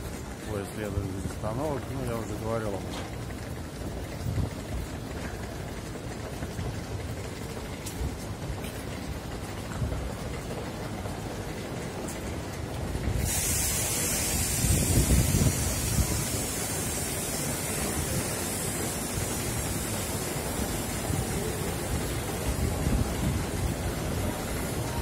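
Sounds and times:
wind buffeting the microphone: 3.6s - 11.2s, 12.5s - 25.0s
steady high hiss: 13.1s - 25.0s.

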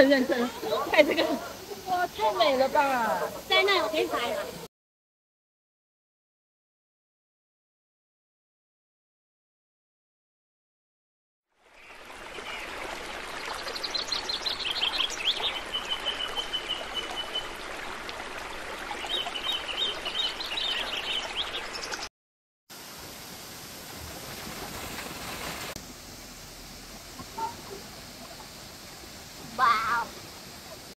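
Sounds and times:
stream running water: 0.0s - 4.7s, 11.5s - 22.1s, 22.7s - 30.9s.

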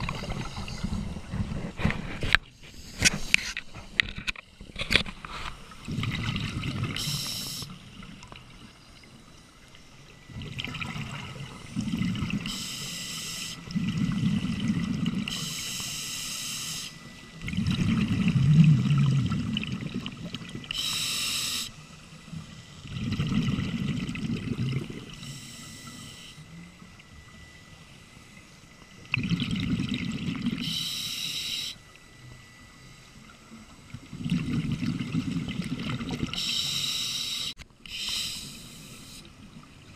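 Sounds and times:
exhaled bubbles gurgling: 0.0s - 2.4s, 5.4s - 9.2s, 10.0s - 15.9s, 17.3s - 26.0s, 28.9s - 30.9s, 33.3s - 36.8s
regulator hiss on inhale: 7.0s - 7.8s, 12.4s - 13.7s, 15.3s - 17.3s, 20.7s - 22.1s, 25.1s - 26.6s, 30.6s - 32.0s, 36.3s - 39.4s.

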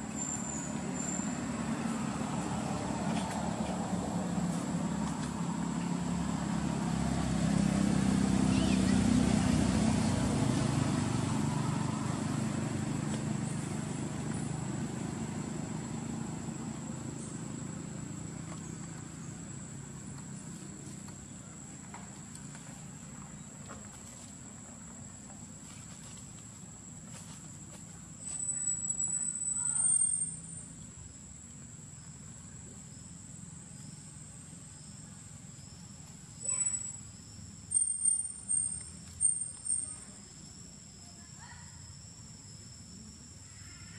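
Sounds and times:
vehicle engine rumble: 0.0s - 43.9s
high-pitched insect drone: 32.9s - 43.9s.

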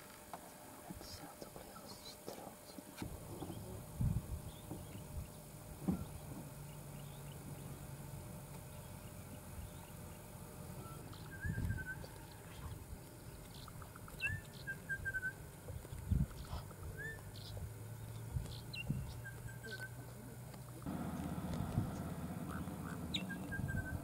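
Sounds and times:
low rumble: 20.8s - 24.0s
warbling bird call: 21.2s - 24.0s.

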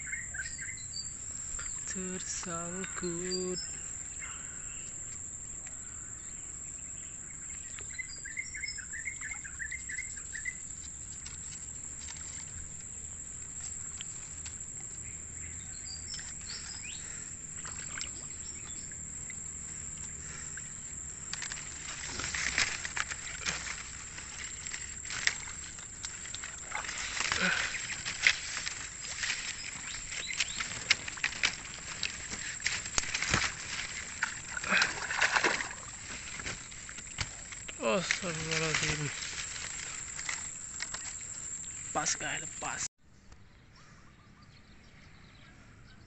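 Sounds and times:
bird chirping: 0.0s - 2.2s, 5.8s - 10.7s, 14.9s - 19.3s
high insect drone: 0.0s - 42.9s
vegetation rustling and crackling: 7.4s - 42.8s.

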